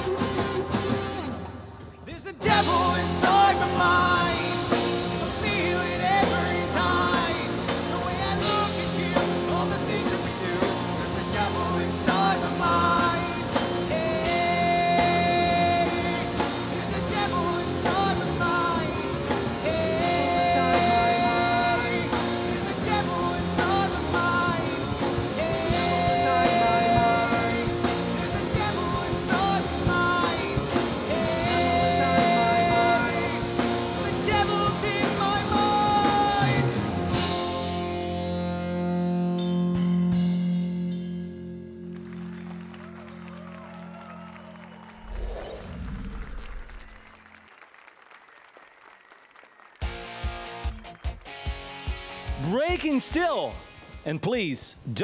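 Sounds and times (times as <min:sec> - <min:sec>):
rock band playing live: 0:00.0 - 0:43.1, 0:49.8 - 0:55.0
man singing: 0:02.0 - 0:37.2, 0:52.4 - 0:55.0.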